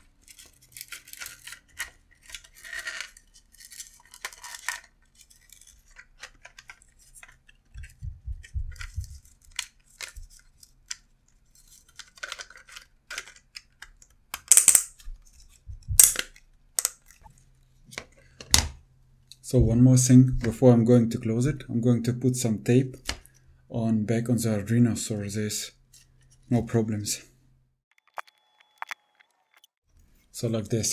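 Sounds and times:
plastic rustles and scrapes: 0.0 - 14.0
dull low thumps: 7.8 - 9.2, 15.6 - 16.0.

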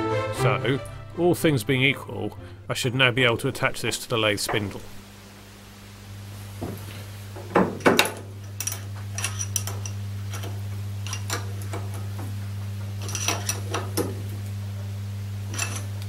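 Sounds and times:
steady low hum: 0.6 - 16.0
metal clunks and clinks: 7.6 - 11.5.

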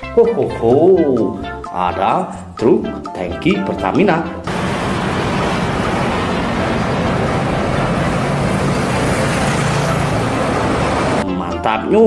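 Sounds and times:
truck engine hum: 4.5 - 11.2
tyre and road noise: 4.5 - 11.2.

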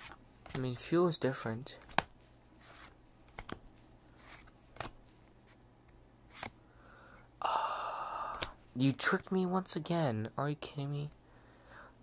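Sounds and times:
cards being flipped through: 0.0 - 6.6.

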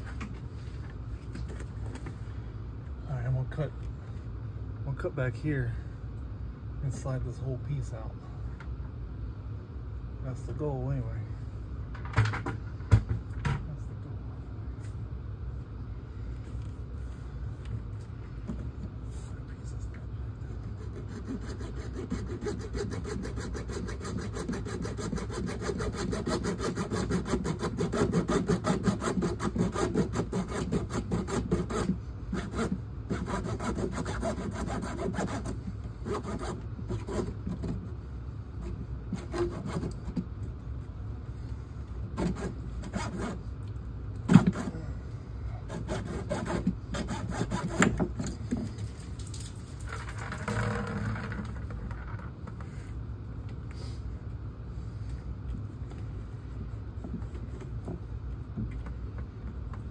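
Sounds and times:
hand saw cutting pipe: 20.6 - 37.8, 38.6 - 40.2, 42.1 - 43.4, 44.3 - 44.8, 45.6 - 48.6.

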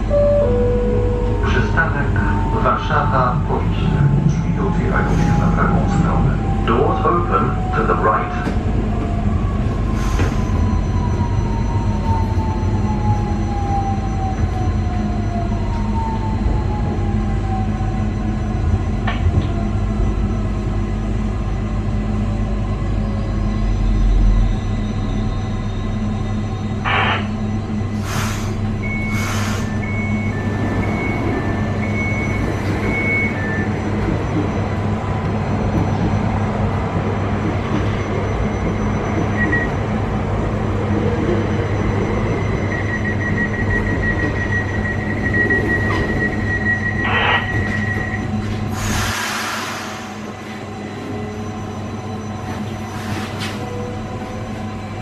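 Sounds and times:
two-tone beeping: 0.0 - 1.8, 28.8 - 40.0, 40.6 - 48.4
train equipment hum: 0.0 - 55.0
fast single-tone beeps: 41.2 - 47.0.

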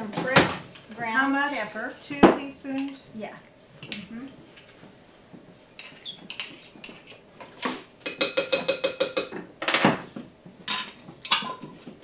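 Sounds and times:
spoon ringing taps on jar: 8.1 - 9.3.

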